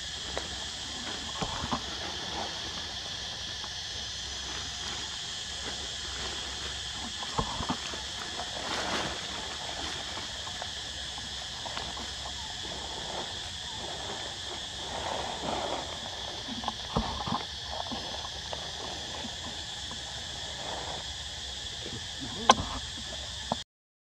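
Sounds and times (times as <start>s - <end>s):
insects droning: 0.0s - 23.6s.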